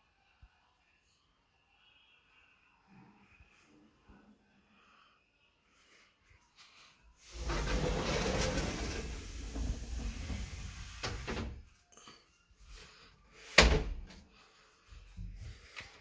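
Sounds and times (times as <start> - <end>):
sliding wardrobe door rolling: 7.3 - 11.7.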